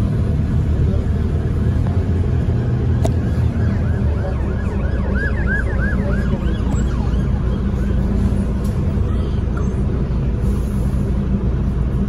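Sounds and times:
bus engine rumble: 0.0s - 12.0s
ambulance siren yelping: 1.3s - 9.1s.

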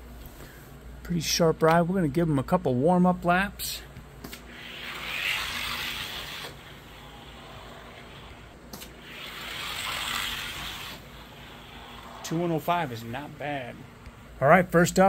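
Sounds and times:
sharp click: 4.2s - 4.5s
toy car wheels rolling on track: 4.6s - 8.4s, 9.0s - 12.4s.

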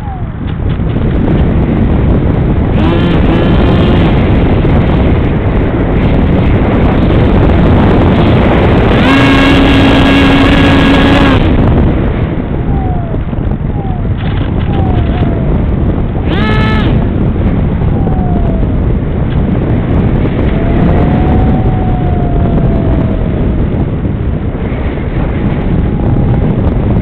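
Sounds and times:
wind rushing over microphone: 0.0s - 27.0s
electric motor whine: 2.7s - 4.6s, 8.0s - 11.7s, 12.6s - 17.2s.

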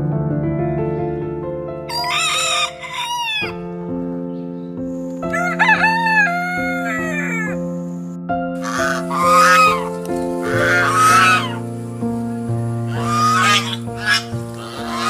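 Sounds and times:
music of sustained notes: 0.0s - 15.0s
rooster crowing: 1.9s - 3.6s, 5.3s - 7.6s, 8.6s - 11.6s, 12.9s - 15.0s.

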